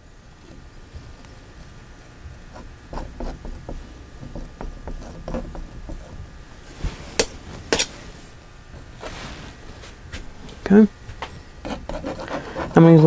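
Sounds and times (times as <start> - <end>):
painting knife scraping canvas: 2.5 - 8.2, 11.2 - 13.0.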